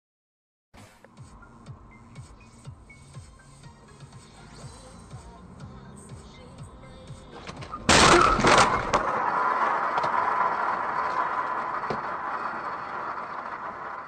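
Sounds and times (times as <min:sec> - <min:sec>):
car crash impact: 0:07.4 - 0:13.7
bang: 0:07.8 - 0:09.3.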